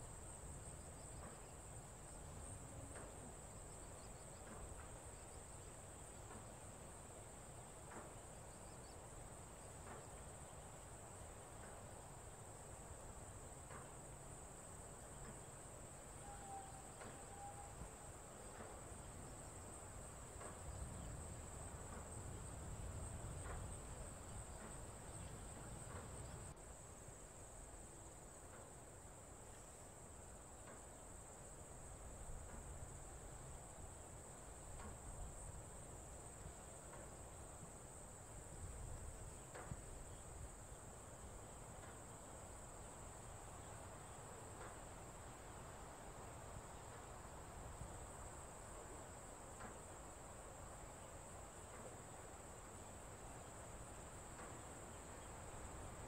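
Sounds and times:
insects chorus: 0.0s - 56.0s.

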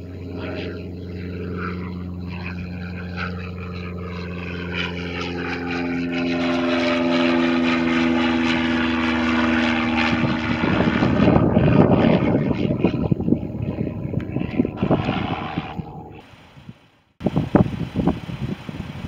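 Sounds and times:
jet engines at takeoff: 0.0s - 19.0s.

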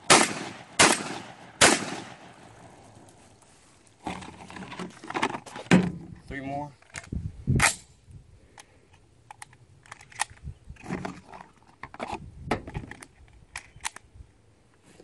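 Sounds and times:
metallic clicks of shotgun action: 9.3s - 10.5s, 12.7s - 14.1s.

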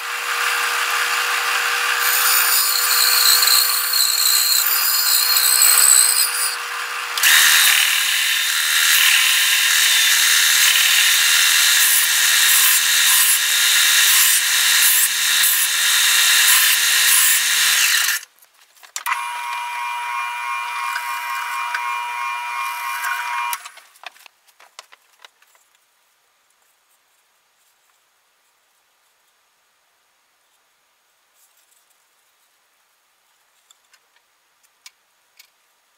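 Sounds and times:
bandsaw cutting wood: 0.0s - 18.2s, 19.1s - 23.8s
power tool whining: 19.0s - 23.8s.

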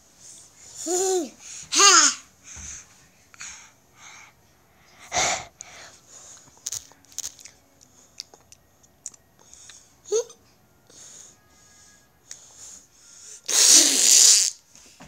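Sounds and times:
sneeze-like burst: 1.8s - 2.2s, 13.5s - 14.6s.

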